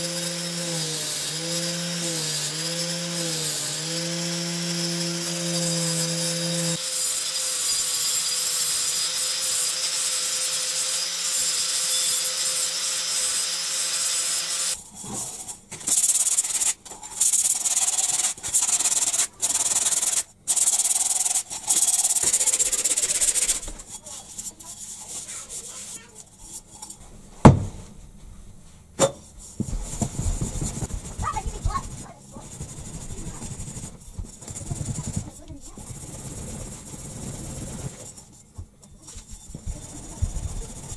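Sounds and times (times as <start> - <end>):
angle grinder humming: 0.0 - 14.8, 17.8 - 24.6
metal being sanded by hand: 0.0 - 27.0, 29.4 - 40.9.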